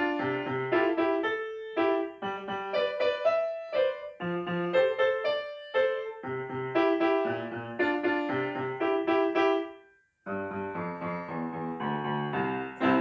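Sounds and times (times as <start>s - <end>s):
grand piano playing: 0.0s - 9.7s, 10.3s - 13.0s.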